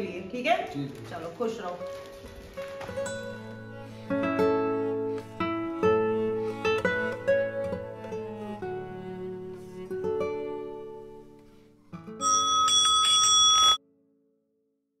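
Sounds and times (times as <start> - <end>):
soft plucked guitar music: 1.8 - 12.2
bright bell ring: 12.2 - 13.8.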